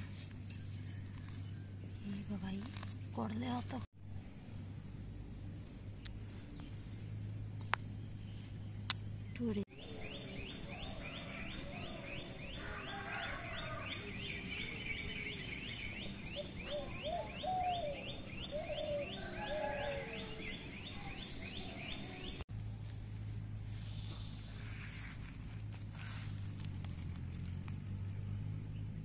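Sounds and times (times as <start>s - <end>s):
low hum: 0.0s - 12.5s.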